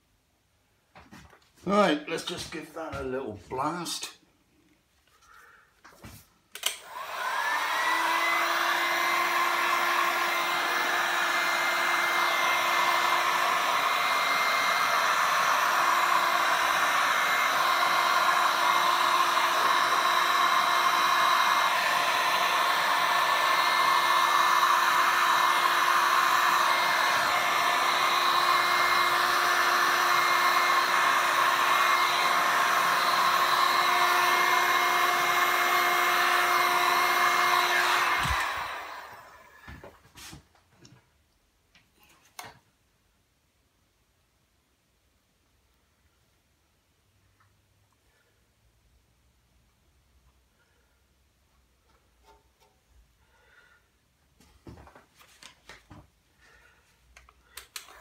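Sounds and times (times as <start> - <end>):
heat gun blowing hot air: 6.5 - 39.9, 57.4 - 58.0
heat gun motor whine: 6.6 - 39.8.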